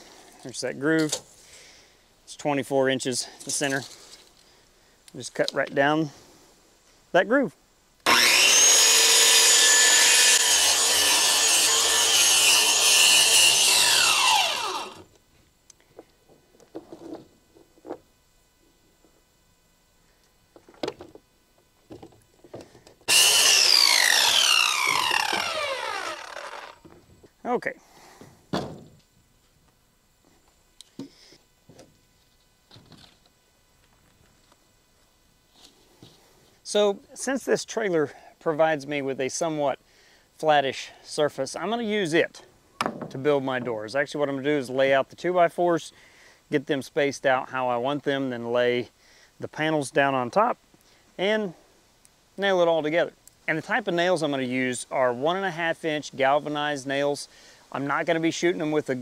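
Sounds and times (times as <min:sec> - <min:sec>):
circular saw cutting siding: 0:08.0 - 0:15.1, 0:23.0 - 0:26.9
lumber thump on wooden deck: 0:28.5 - 0:29.0.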